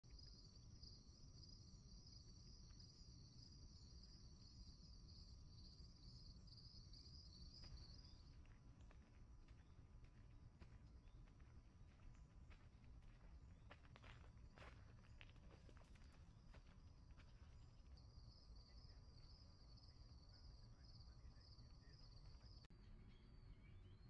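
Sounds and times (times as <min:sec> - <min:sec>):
insects trilling: 0:00.1 - 0:08.6, 0:13.1 - 0:22.7.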